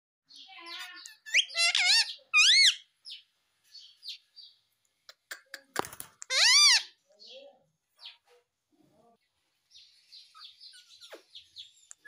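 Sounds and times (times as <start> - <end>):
parakeet chattering and calling: 0.3 - 3.2, 6.2 - 7.4, 10.2 - 12.0.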